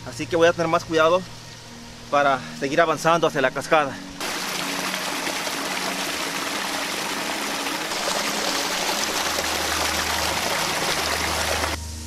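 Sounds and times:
creek rushing over boulders: 0:04.2 - 0:11.8.

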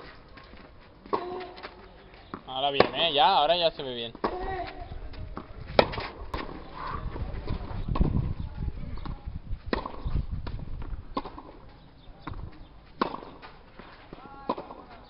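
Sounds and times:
ball bouncing on clay court: 0:00.3 - 0:03.2, 0:04.1 - 0:15.0
tennis ball struck by racket: 0:01.0 - 0:01.8, 0:02.8 - 0:03.1, 0:04.1 - 0:04.5, 0:05.3 - 0:07.0, 0:09.0 - 0:15.0.

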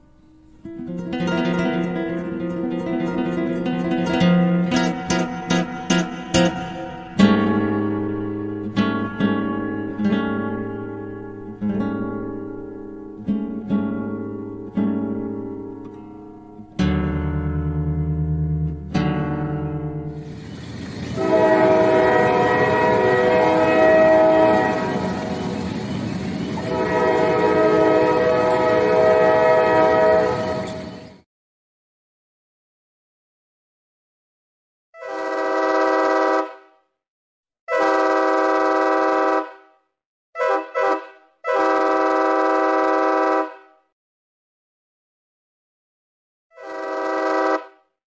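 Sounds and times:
train horn chord: 0:04.1 - 0:11.6, 0:20.0 - 0:31.1, 0:35.0 - 0:36.8, 0:37.7 - 0:39.8, 0:40.4 - 0:43.9, 0:46.5 - 0:47.9
train rumble: 0:20.1 - 0:31.2.

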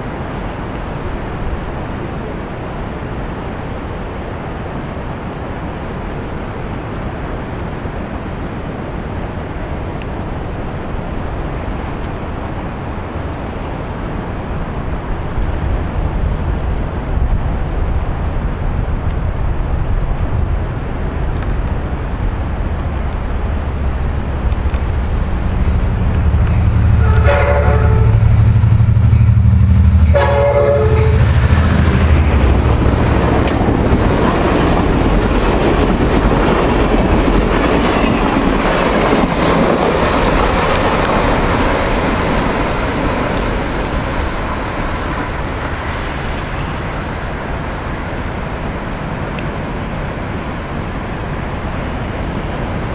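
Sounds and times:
diesel locomotive engine: 0:00.0 - 0:52.9
train cars rail clatter: 0:23.1 - 0:46.8
train horn blasts: 0:24.9 - 0:32.7.

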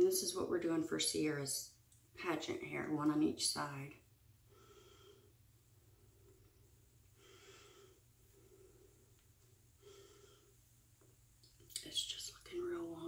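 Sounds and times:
faint breaths through nose: 0:04.5 - 0:10.7.

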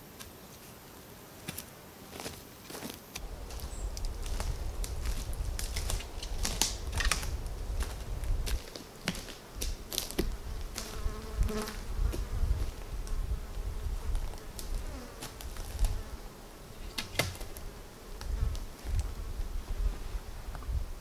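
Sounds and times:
footsteps on dry forest floor: 0:00.0 - 0:11.0
flying insect buzzing: 0:01.6 - 0:20.4
twigs cracking: 0:02.7 - 0:10.9.

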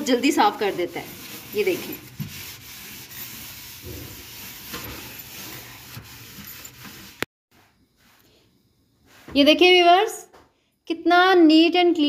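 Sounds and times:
sponge scrubbing plastic: 0:00.0 - 0:07.3.

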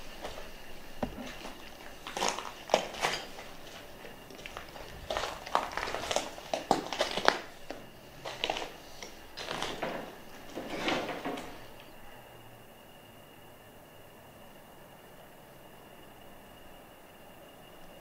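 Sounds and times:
footsteps crunching over rubble: 0:00.0 - 0:11.8.

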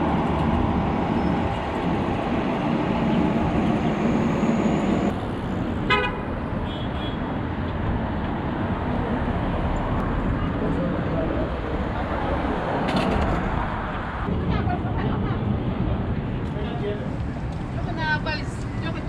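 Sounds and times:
city street traffic: 0:00.0 - 0:19.0
vehicle horn toot: 0:05.9 - 0:07.2.

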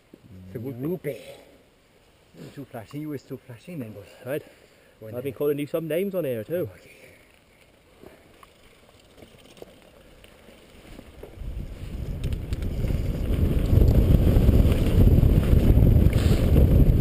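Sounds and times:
tyres rumbling over dirt: 0:10.6 - 0:17.0
wind buffeting microphone: 0:11.2 - 0:17.0.

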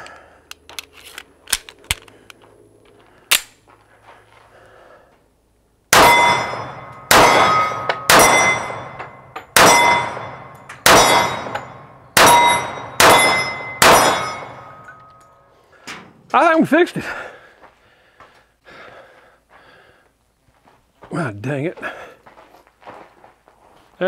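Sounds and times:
pistol shots: 0:05.9 - 0:14.8
steel targets clanging: 0:05.9 - 0:15.4.

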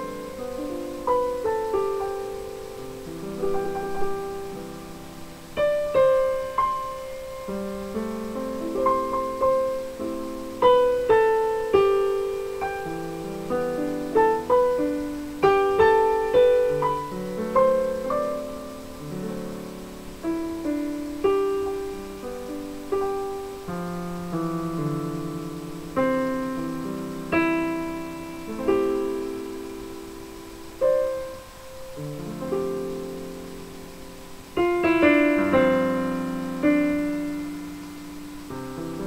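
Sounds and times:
slow piano piece: 0:00.0 - 0:39.0.

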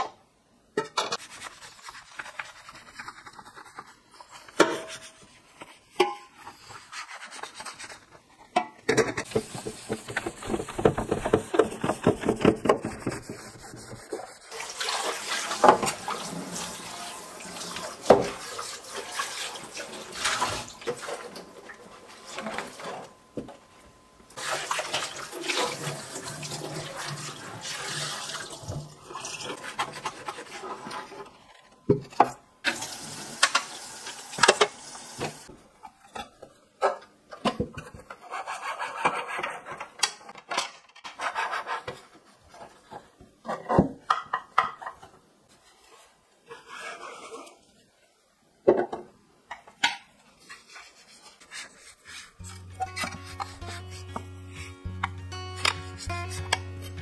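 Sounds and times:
plastic parts knocking: 0:08.8 - 0:13.4
scrubbing plastic drawers: 0:09.2 - 0:16.8
cloth rubbing wet plastic: 0:09.3 - 0:21.2
tap water running into sink: 0:24.4 - 0:28.9.

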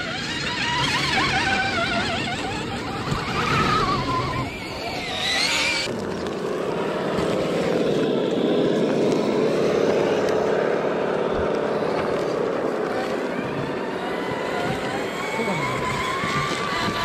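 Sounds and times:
electric motor and gear whine: 0:00.0 - 0:17.0
higher whine climbing: 0:00.0 - 0:17.0.

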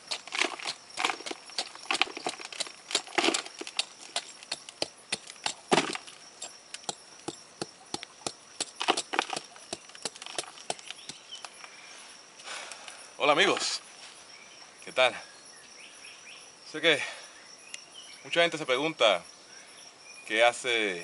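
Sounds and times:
hand tool scraping soil and rock: 0:00.0 - 0:11.6, 0:13.4 - 0:13.8.

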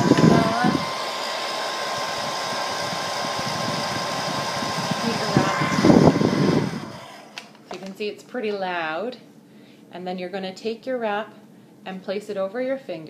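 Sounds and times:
hair dryer running: 0:00.0 - 0:07.9.

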